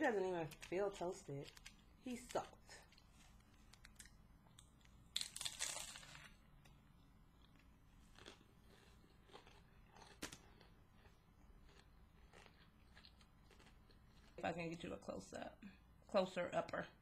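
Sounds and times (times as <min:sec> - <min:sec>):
chewing crunches: 0:01.4 - 0:14.4
crunchy bite: 0:04.0 - 0:06.4, 0:08.1 - 0:14.4.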